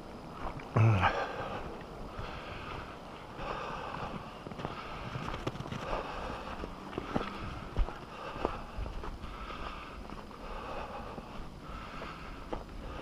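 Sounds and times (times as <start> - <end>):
footsteps: 1.5 - 13.0
wind noise on microphone: 1.7 - 9.9.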